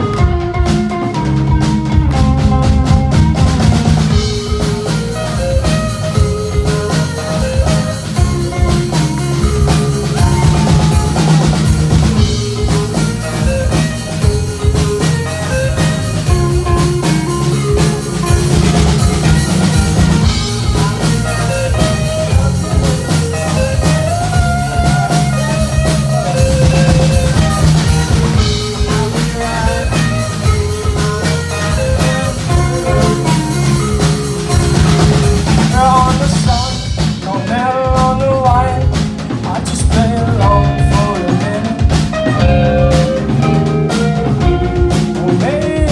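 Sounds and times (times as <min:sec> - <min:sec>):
drum kit beat: 0:00.0 - 0:45.9
electric guitars: 0:00.0 - 0:45.9
rock band playing live: 0:00.0 - 0:45.9.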